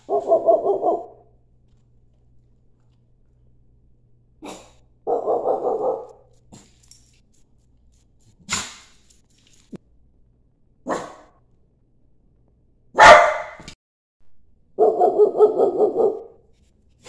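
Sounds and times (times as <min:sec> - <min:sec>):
small dog barking: 0:00.0 - 0:01.3, 0:04.4 - 0:06.2, 0:10.9 - 0:11.3, 0:13.0 - 0:13.7, 0:14.8 - 0:16.4.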